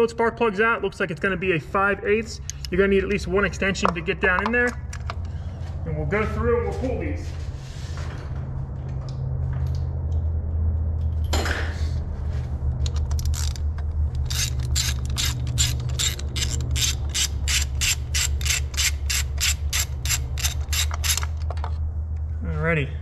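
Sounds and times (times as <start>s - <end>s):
ratchet clicking: 12.8s - 21.5s
tool scraping: 12.8s - 21.8s.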